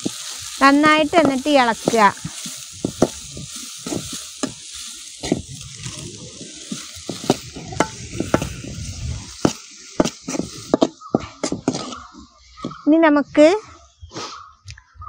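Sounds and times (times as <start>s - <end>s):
onion sizzling in hot oil: 0.0s - 12.0s
spoon scraping a wok: 0.0s - 12.8s.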